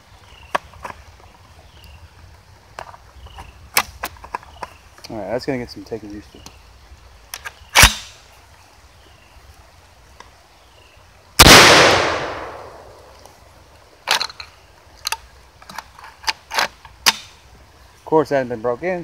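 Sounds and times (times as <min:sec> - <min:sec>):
shotgun shot echoing: 0:11.4 - 0:13.1.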